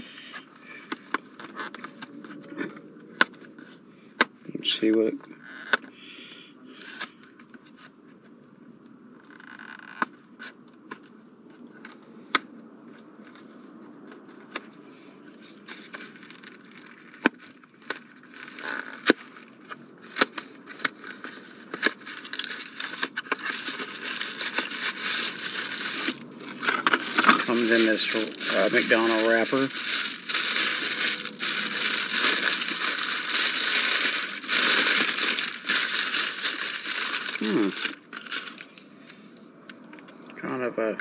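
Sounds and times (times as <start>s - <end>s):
plastic wrapper crinkling: 15.4s - 38.9s.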